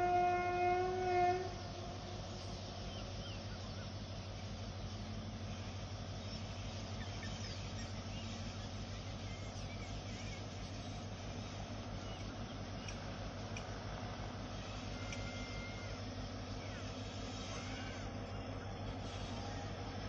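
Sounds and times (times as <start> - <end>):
diesel locomotive engine drone: 0.0 - 20.0
faint bird chirps: 5.6 - 13.0.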